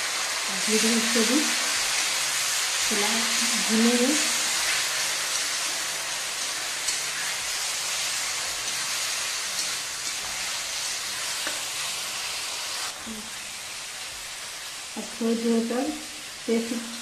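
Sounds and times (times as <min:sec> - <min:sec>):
paste sizzling in hot oil: 0:00.0 - 0:17.0.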